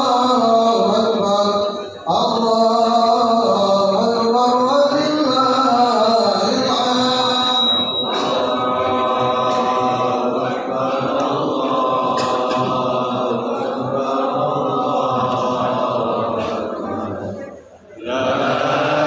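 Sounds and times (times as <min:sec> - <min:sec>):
men chanting: 0:00.0 - 0:19.0.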